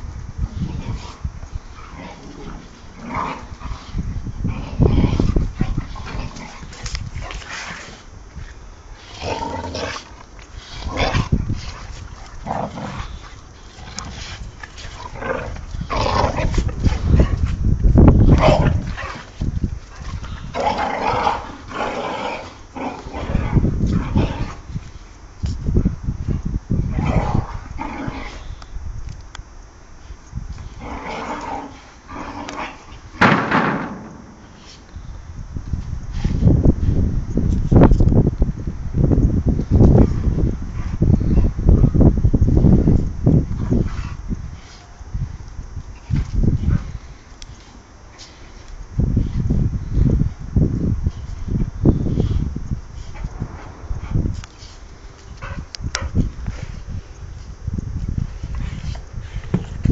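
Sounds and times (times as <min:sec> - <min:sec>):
dogs growling: 0:00.5 - 0:08.1, 0:09.0 - 0:17.5, 0:18.2 - 0:24.7, 0:26.8 - 0:28.6, 0:30.6 - 0:34.4, 0:53.0 - 0:56.8.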